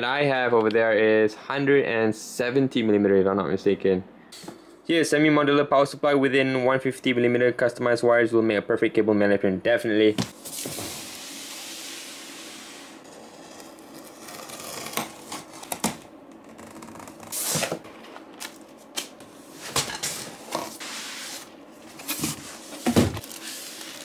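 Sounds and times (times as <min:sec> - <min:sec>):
cardboard box being unpacked: 0:13.0 - 0:17.8, 0:23.0 - 0:24.0.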